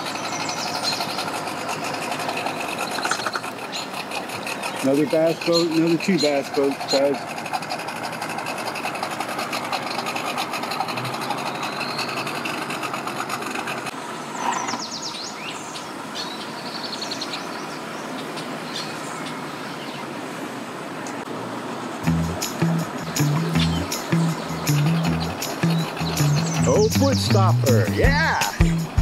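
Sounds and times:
outboard motors idling: 0.0 - 15.3, 21.1 - 29.0
water noise: 0.0 - 29.0.

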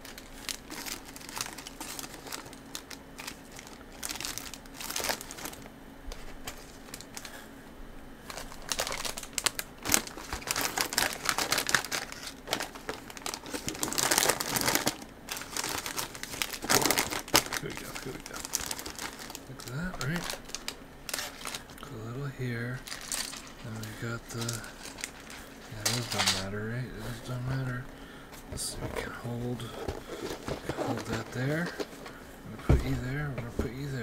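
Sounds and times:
plastic packets rustling and crinkling: 0.0 - 7.5, 8.2 - 22.0, 22.6 - 34.0.

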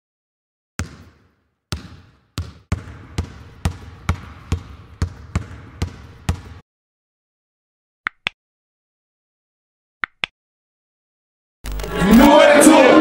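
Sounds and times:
basketball bouncing on hard floor: 0.8 - 6.6.

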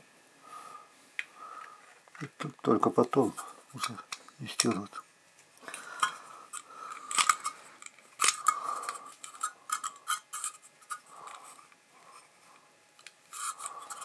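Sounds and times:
light metal scraping: 13.3 - 14.0.

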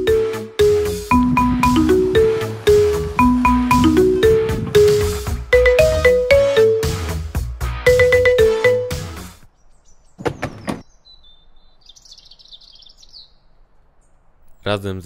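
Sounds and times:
mallet instrument melody: 0.0 - 9.3
high bird chirps: 9.6 - 14.7.

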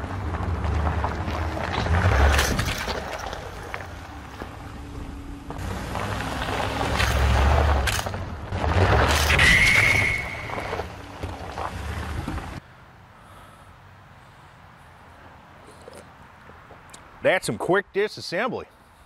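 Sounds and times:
tyres rolling over gravel: 0.0 - 12.6.

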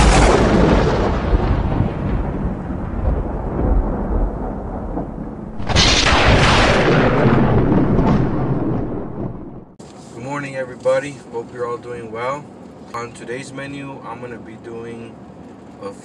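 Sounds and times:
loud thunder crash: 0.0 - 9.8
rumbling thunder boom: 0.0 - 9.8.

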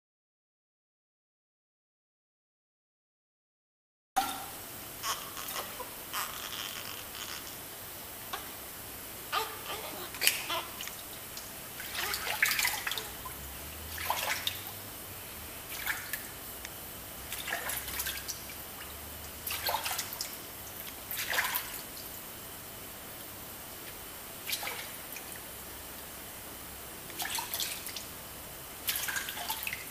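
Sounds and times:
water splashing: 9.3 - 14.8, 15.7 - 16.3, 17.2 - 20.4, 21.1 - 22.2, 24.4 - 25.4, 27.2 - 28.1, 28.8 - 29.9.

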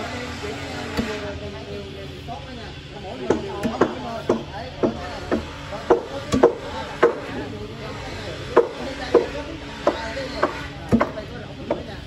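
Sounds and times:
steel bar striking wood: 8.6 - 11.8.

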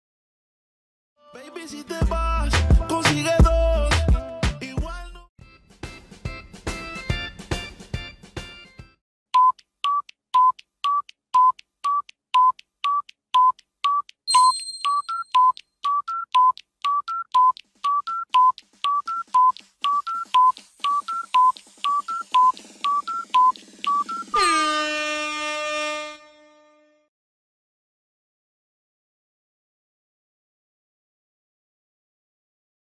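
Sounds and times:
music: 1.2 - 9.0, 17.9 - 24.6
countdown timer beeps: 9.4 - 24.8
high chime: 14.3 - 15.5, 24.3 - 24.8
loud buzzer: 23.0 - 27.1.

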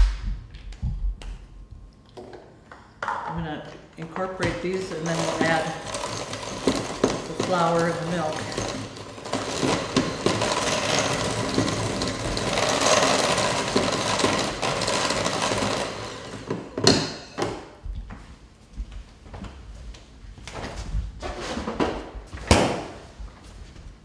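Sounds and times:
electric hand mixer running: 8.5 - 16.8.

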